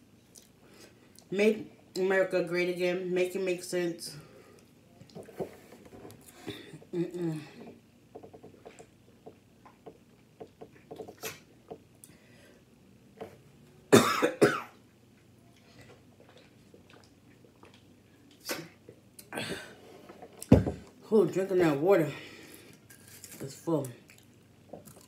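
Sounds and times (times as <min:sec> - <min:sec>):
person breathing: 0:12.1 - 0:12.7, 0:22.1 - 0:22.8
person coughing: 0:13.9 - 0:14.8
person gulping water: 0:15.8 - 0:19.7.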